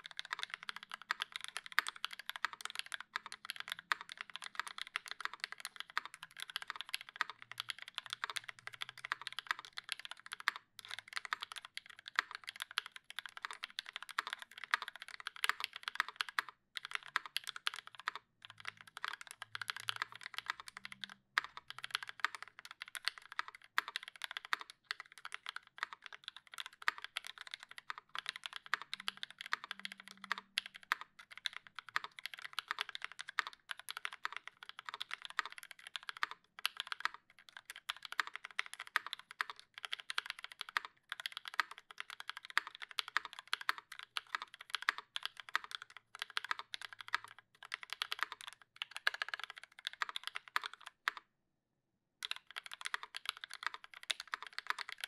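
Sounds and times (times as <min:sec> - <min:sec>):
mechanical keyboard typing: 0:00.0 - 0:51.2, 0:52.2 - 0:55.0.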